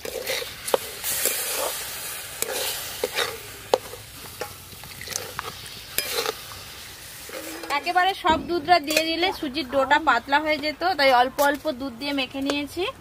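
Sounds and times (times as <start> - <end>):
spatula scraping steel pan: 0.0 - 1.8, 2.4 - 4.6, 5.9 - 6.5, 7.2 - 8.0
milk sizzling: 0.0 - 11.1.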